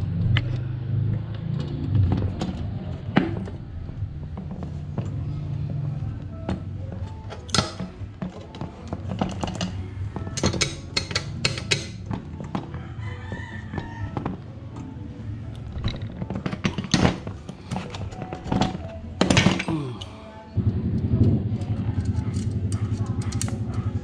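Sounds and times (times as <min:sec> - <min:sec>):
metallic clicks of wrench and bolt: 0:10.4 - 0:12.0
person calling out: 0:19.6 - 0:20.3.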